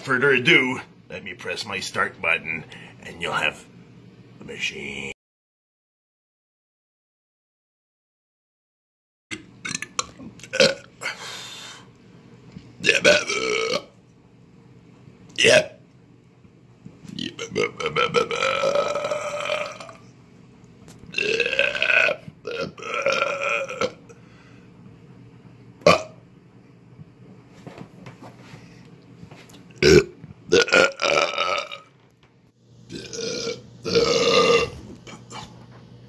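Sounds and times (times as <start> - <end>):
man belching: 9.6 - 11.1, 12.8 - 14.0, 15.4 - 15.8, 17.1 - 20.0, 21.1 - 24.2, 25.8 - 26.2, 29.8 - 31.9, 32.9 - 35.3.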